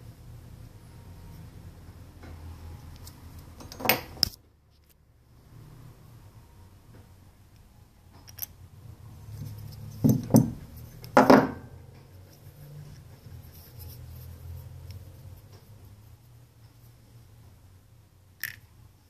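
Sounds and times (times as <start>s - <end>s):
metal parts knocking on workbench: 10.0s - 10.6s, 11.2s - 11.7s.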